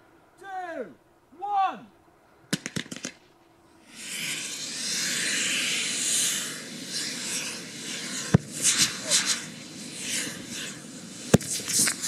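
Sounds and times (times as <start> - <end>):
sharp firework cracks: 2.5 - 3.3, 3.9 - 12.0
rocket rushing hiss: 3.7 - 12.0.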